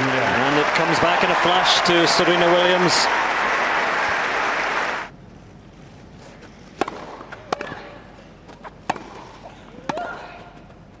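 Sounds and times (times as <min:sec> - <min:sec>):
crowd applauding: 0:00.0 - 0:05.1
tennis ball struck by rackets: 0:06.8 - 0:07.8, 0:08.8 - 0:10.1.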